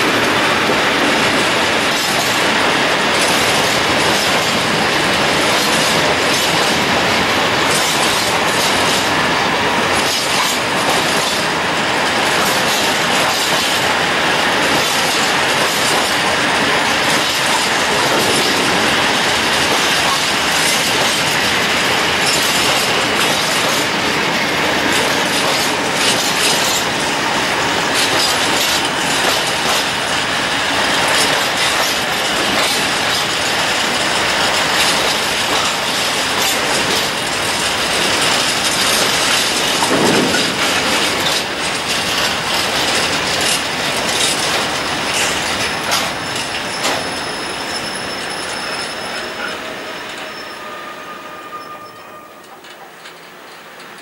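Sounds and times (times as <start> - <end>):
wheels clicking over rail joints: 0.0 - 47.9, 52.4 - 54.0
train wheels rumbling on rails: 0.0 - 54.0.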